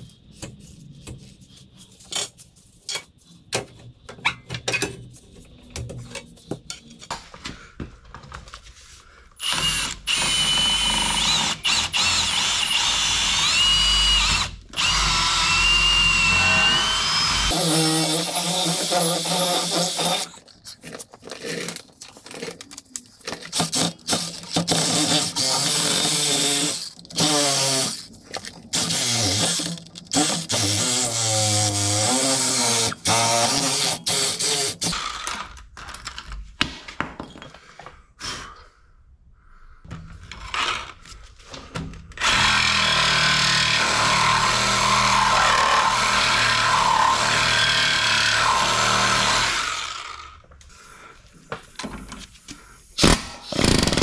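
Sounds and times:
cordless drill boring through rubber: 0:09.4 - 0:20.4, 0:23.6 - 0:28.1, 0:28.8 - 0:35.5, 0:42.2 - 0:50.4, 0:53.0 - 0:54.0.

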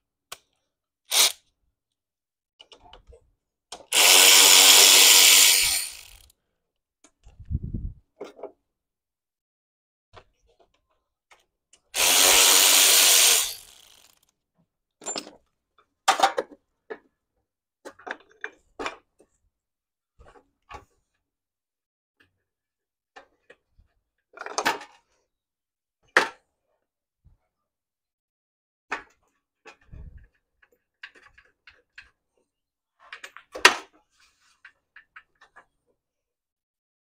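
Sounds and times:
handheld power tool running: 0:01.1 - 0:01.4, 0:03.9 - 0:06.3, 0:12.0 - 0:14.2.

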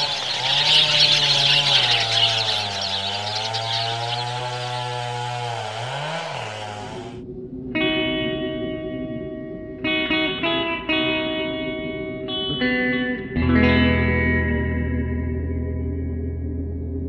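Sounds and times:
high hissing chirr: 0:00.0 - 0:05.7
low motor-like drone: 0:00.0 - 0:12.4, 0:13.2 - 0:17.0.

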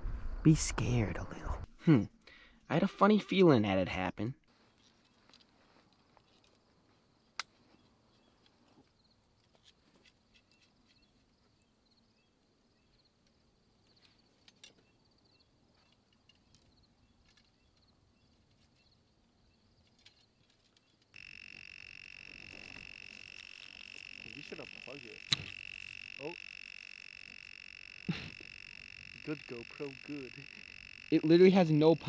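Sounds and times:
faint calls and ticks: 0:04.5 - 0:32.0
high-pitched electronic whine: 0:21.2 - 0:32.0.

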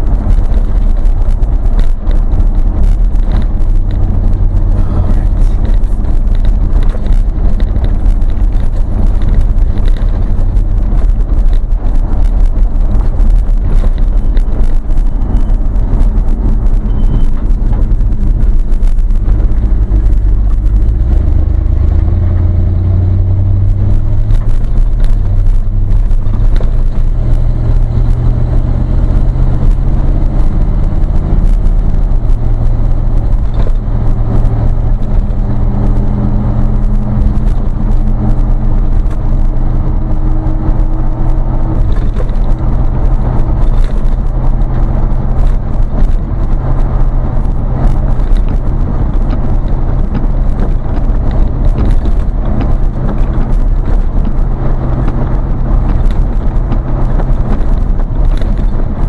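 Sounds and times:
small rattles: 0:00.0 - 0:22.2, 0:23.6 - 0:59.0
tyre and road noise: 0:00.0 - 0:59.0
vehicle engine drone: 0:00.0 - 0:59.0.

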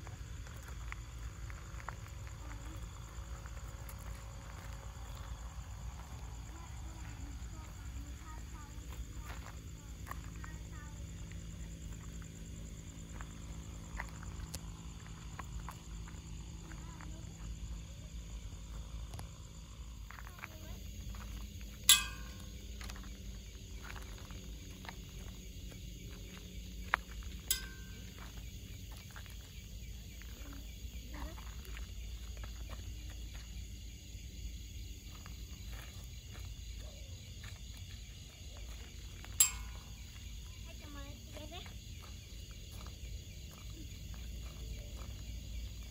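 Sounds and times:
steady low rumble: 0:00.0 - 0:36.5
faint insect chirping: 0:00.0 - 0:45.9.

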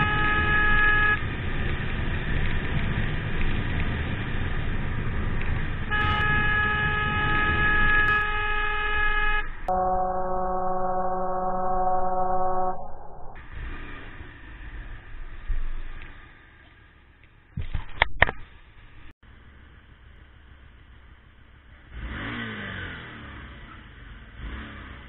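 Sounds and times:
vehicle horn blast: 0:00.0 - 0:01.2, 0:05.9 - 0:13.4
road and engine noise: 0:00.0 - 0:10.7, 0:12.8 - 0:25.0
slowed-down low horn: 0:05.9 - 0:08.6, 0:09.7 - 0:13.4.

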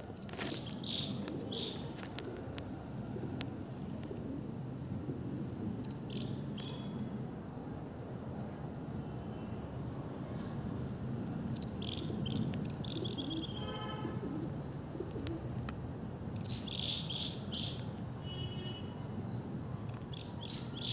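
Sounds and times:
small birds chirping: 0:00.1 - 0:02.3, 0:04.6 - 0:07.0, 0:11.5 - 0:13.6, 0:16.4 - 0:18.0, 0:19.3 - 0:20.9.

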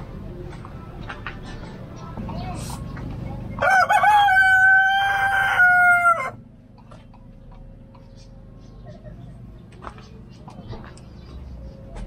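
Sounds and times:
rooster crowing: 0:03.6 - 0:06.4.

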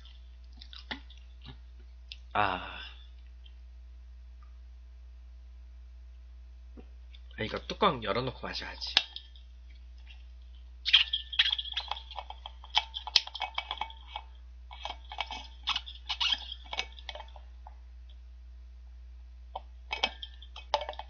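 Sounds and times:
person gulping: 0:00.0 - 0:03.3.

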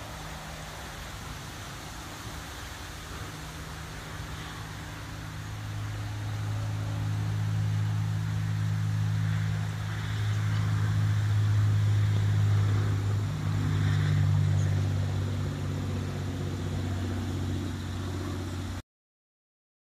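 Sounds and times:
traffic engine hum: 0:00.0 - 0:18.8.

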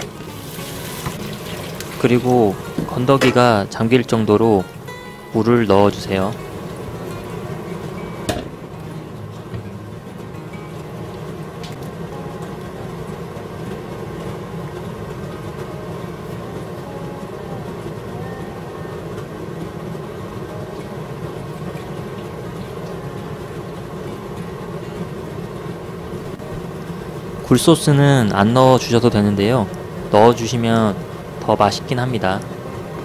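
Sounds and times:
steady hum: 0:00.0 - 0:33.0
sauce crackling in a frying pan: 0:00.2 - 0:03.6.

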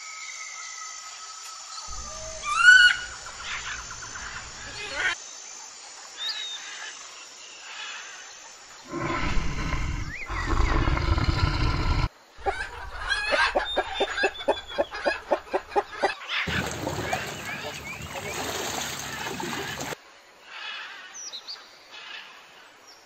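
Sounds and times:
faint bird chirps: 0:00.2 - 0:05.2, 0:08.8 - 0:16.4
cheetah growling: 0:08.8 - 0:15.7
chickens clucking: 0:12.4 - 0:18.2.

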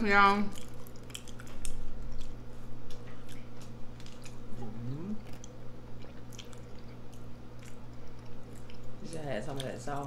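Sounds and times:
steady low hum: 0:00.0 - 0:10.0
chewing with wet mouth clicks: 0:00.2 - 0:10.0
person humming: 0:04.6 - 0:05.2.

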